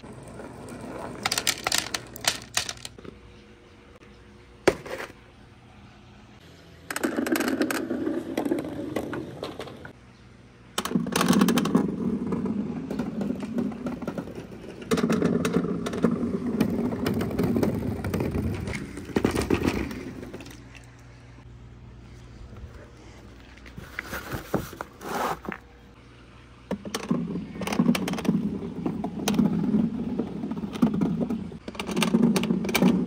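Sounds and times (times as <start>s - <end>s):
balls clattering down a chute: 0.0s - 3.0s.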